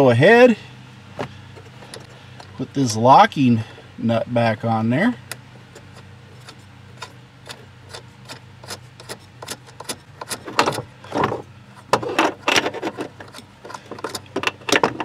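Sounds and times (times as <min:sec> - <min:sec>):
metal nut clicking and scraping: 0:05.7 - 0:11.2, 0:11.8 - 0:15.0.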